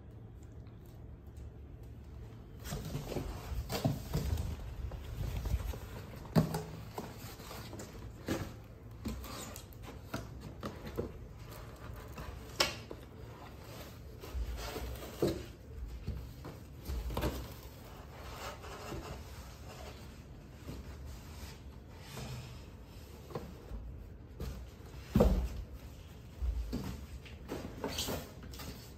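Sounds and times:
cardboard and wrapping rustling: 0:00.4 - 0:28.9
handling knocks and thumps: 0:02.6 - 0:13.1, 0:23.2 - 0:28.6.

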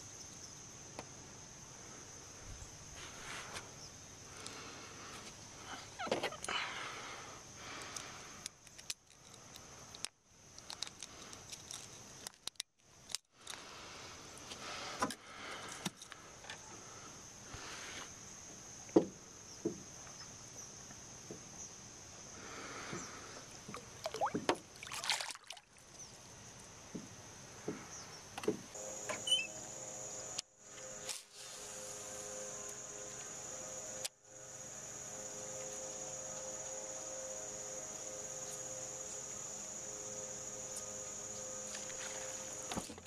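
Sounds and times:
fishing gear clicks and knocks: 0:07.9 - 0:13.6
water sloshing against boat: 0:23.6 - 0:25.9
water splashing: 0:23.7 - 0:25.9
faint high-pitched tone: 0:28.8 - 0:42.9.

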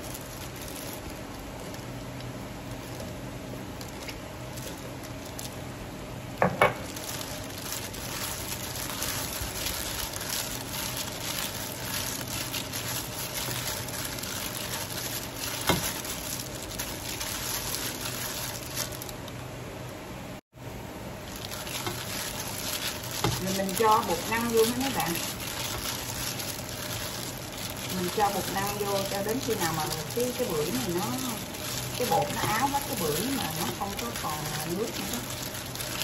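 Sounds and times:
gloved hand rustling starch: 0:06.9 - 0:19.1, 0:21.3 - 0:36.0.

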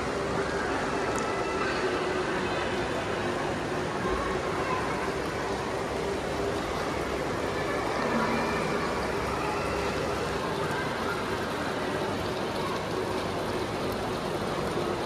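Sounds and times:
water fountain rushing: 0:00.0 - 0:15.0.

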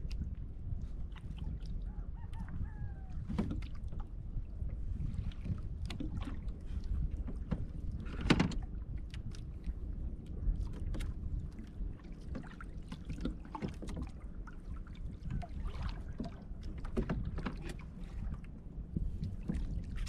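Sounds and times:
water against canoe: 0:00.0 - 0:20.0
wind on microphone: 0:00.0 - 0:20.0.

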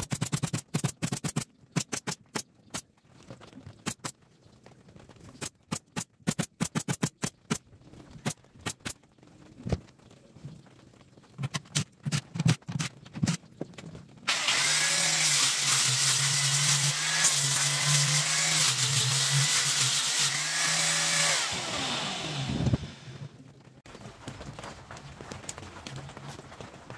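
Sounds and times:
clicks and knocks on plywood: 0:11.4 - 0:14.0
cordless drill drilling plywood: 0:14.3 - 0:23.3.

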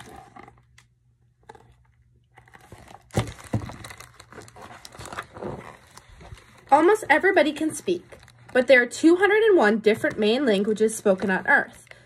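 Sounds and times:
book pages rustling and crinkling: 0:00.0 - 0:08.9.

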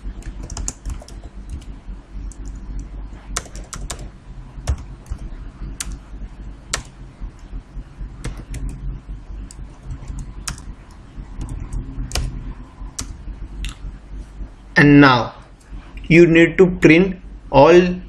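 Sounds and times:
low steady hum: 0:00.0 - 0:18.0
computer keyboard keystrokes: 0:00.2 - 0:01.7, 0:02.3 - 0:02.8, 0:03.4 - 0:06.0, 0:06.7 - 0:06.9, 0:08.2 - 0:08.8, 0:09.4 - 0:12.3, 0:12.9 - 0:13.2.

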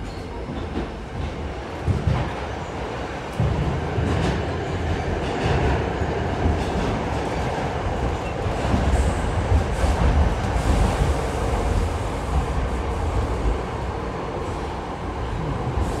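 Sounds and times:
subway train rumble: 0:00.0 - 0:16.0.

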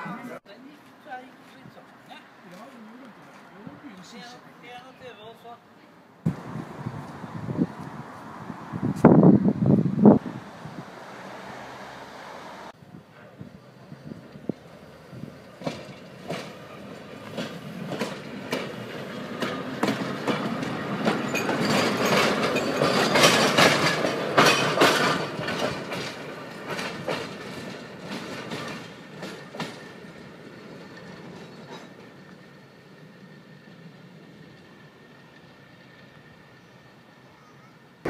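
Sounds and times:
tram wheels clicking over rail joints: 0:14.1 - 0:36.6.

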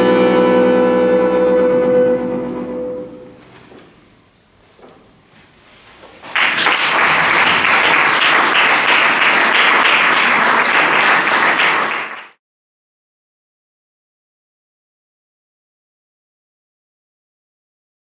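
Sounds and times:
audience applauding: 0:06.2 - 0:12.4.

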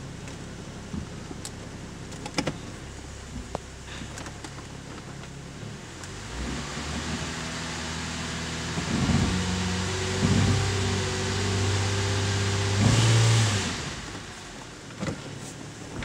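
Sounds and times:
car engine revving: 0:05.5 - 0:14.6.

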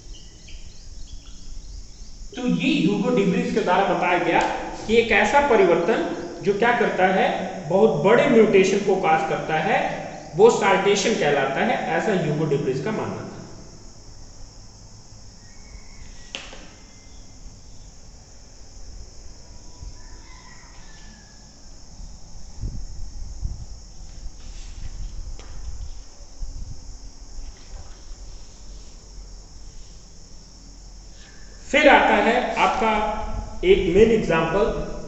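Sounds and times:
sharp click: 0:04.4 - 0:04.6.

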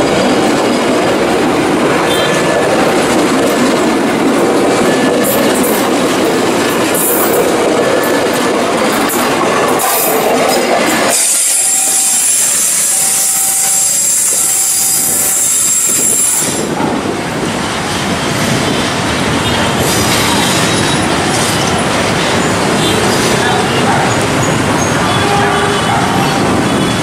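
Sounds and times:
train rumble: 0:00.0 - 0:27.0
train wheels squealing: 0:11.0 - 0:16.7, 0:19.5 - 0:25.4.

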